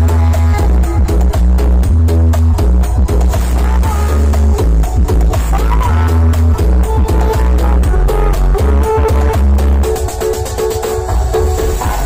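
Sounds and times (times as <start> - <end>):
loud electronic dance music: 0.0 - 12.0.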